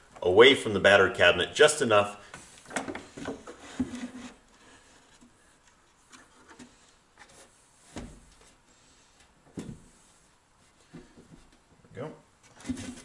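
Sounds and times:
rubbing and light knocks: 0:02.3 - 0:08.8, 0:12.4 - 0:13.0.

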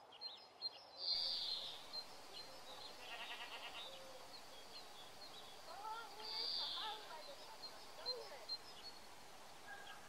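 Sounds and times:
goat bleating: 0:03.0 - 0:03.8.

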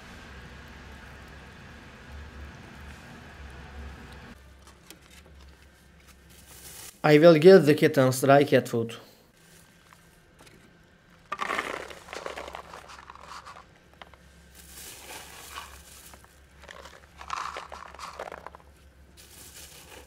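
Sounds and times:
dry kibble clattering onto tray: 0:11.3 - 0:14.1, 0:14.8 - 0:18.6.

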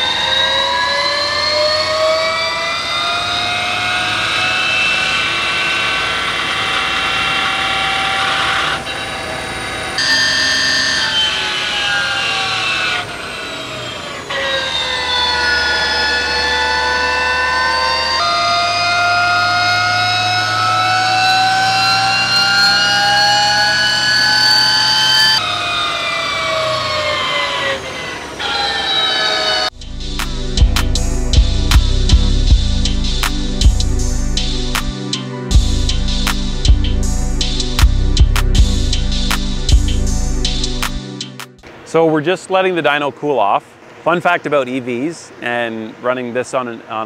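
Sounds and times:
electric motor whining: 0:00.0 - 0:34.9
steady low hum: 0:29.7 - 0:34.9.

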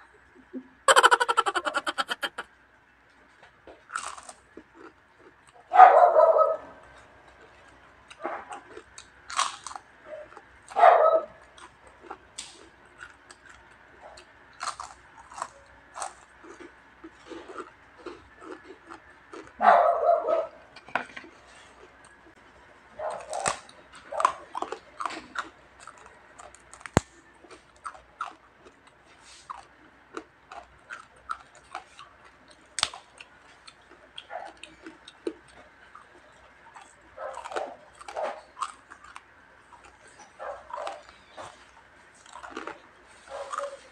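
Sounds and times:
crunching crispy food: 0:03.9 - 0:05.6, 0:07.0 - 0:10.8, 0:11.5 - 0:19.6, 0:23.2 - 0:43.9
small dog barking: 0:05.7 - 0:06.7, 0:10.8 - 0:11.4, 0:19.6 - 0:20.6, 0:37.2 - 0:38.4.

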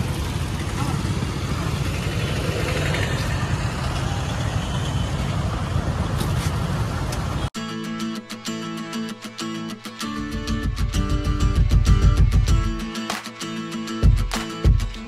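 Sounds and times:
motorbikes and rickshaws on road: 0:00.0 - 0:07.6.

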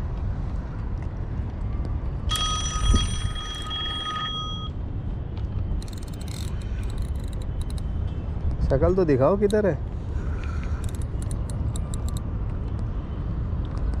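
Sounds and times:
wind rumble on microphone: 0:00.0 - 0:14.0
mobile phone ringtone: 0:02.3 - 0:04.8.

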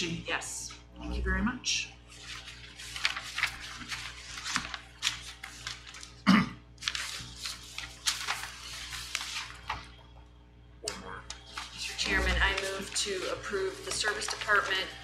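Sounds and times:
papers rustling: 0:02.1 - 0:06.2, 0:06.8 - 0:10.0, 0:11.3 - 0:15.0
person coughing: 0:06.2 - 0:06.7.

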